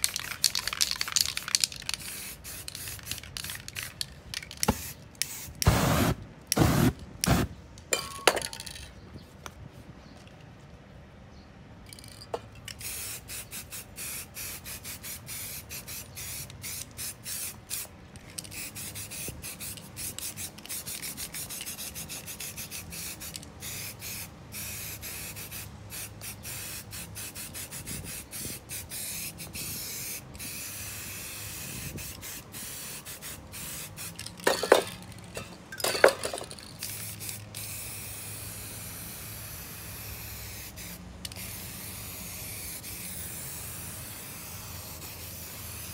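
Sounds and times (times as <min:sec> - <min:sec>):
aerosol spray can hissing: 0:04.6 - 0:07.5.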